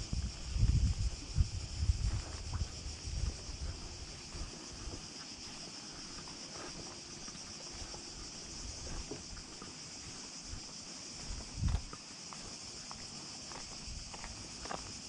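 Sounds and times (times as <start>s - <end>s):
cicadas buzzing: 0.0s - 15.0s
footsteps on concrete: 8.8s - 15.0s.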